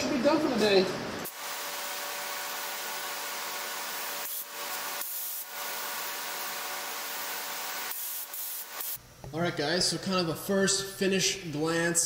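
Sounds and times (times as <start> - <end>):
spray gun hissing: 1.3 - 9.0.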